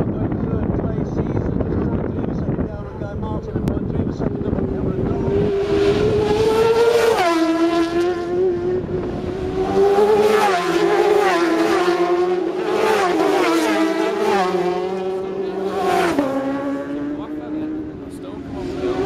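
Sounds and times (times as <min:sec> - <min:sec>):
racing motorcycles accelerating past: 0:04.2 - 0:19.0.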